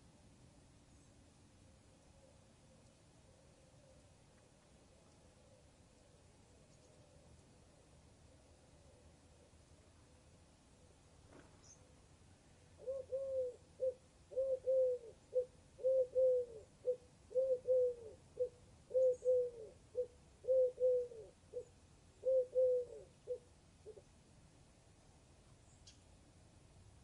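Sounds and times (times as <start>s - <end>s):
bird cooing: 12.8s - 24.1s.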